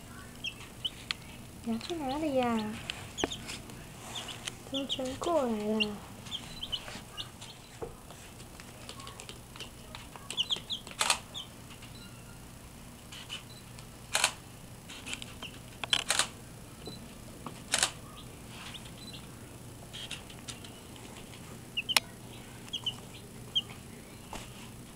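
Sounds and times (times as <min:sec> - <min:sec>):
chicks peeping: 0:00.0 - 0:12.4, 0:15.0 - 0:16.0, 0:17.8 - 0:24.8
sharp clicks: 0:08.8 - 0:11.2, 0:13.8 - 0:14.4, 0:15.0 - 0:16.3, 0:17.7 - 0:18.0.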